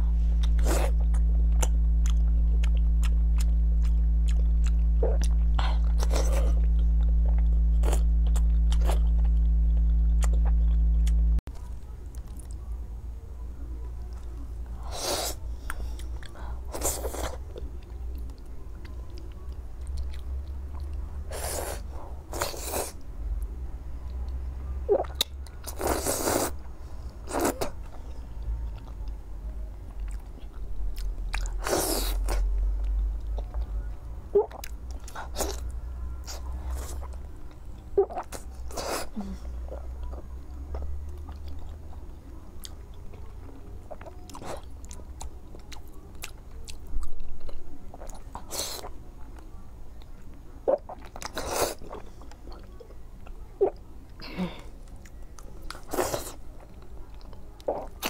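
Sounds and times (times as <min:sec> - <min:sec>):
loud steady low hum: 0:00.0 - 0:50.6
person chewing food: 0:00.3 - 0:11.3, 0:29.9 - 0:33.7, 0:34.4 - 0:41.9, 0:42.6 - 0:48.9, 0:50.3 - 0:58.0.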